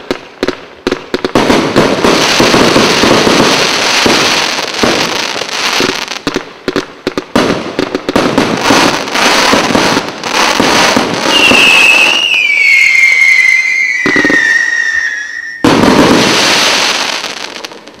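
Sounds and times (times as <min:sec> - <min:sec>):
firework shots and crackling: 0:00.0 - 0:18.0
loud crackling burst: 0:01.0 - 0:12.4
firework whistle falling in pitch: 0:11.2 - 0:15.8.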